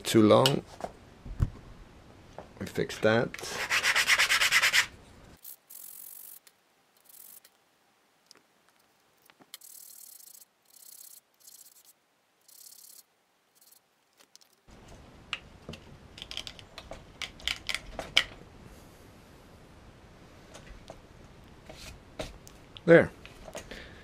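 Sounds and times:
wood sanded on sanding sponge: 0:03.5 - 0:04.9.

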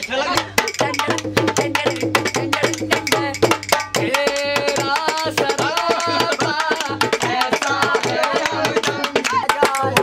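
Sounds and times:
hand drum beating: 0:00.0 - 0:10.0
person singing: 0:00.1 - 0:10.0.

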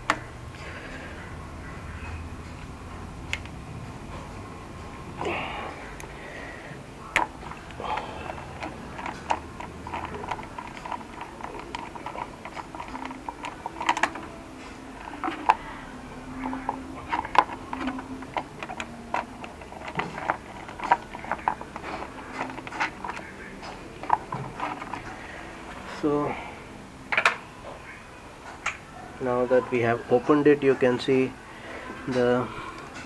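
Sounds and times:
hand tool clicking on bolts: 0:07.2 - 0:14.3.

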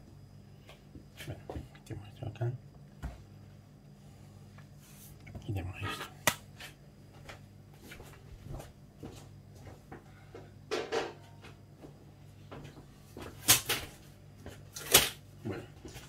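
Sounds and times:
kitchen items knocking and clicking: 0:10.7 - 0:11.2.

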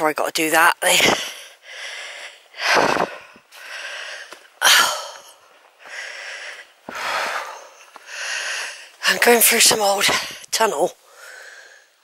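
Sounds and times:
person breathing hard: 0:01.0 - 0:09.0, 0:11.0 - 0:12.0.

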